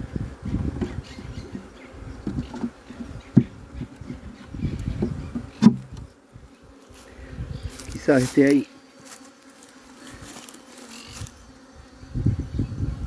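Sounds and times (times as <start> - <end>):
honeybees buzzing: 0.0 - 13.0
hive frames knocking: 0.5 - 6.1.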